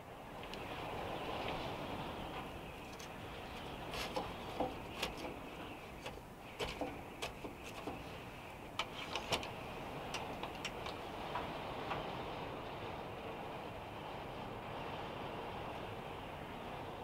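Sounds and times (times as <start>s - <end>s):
wood clicking and crackling: 2.8s - 11.5s.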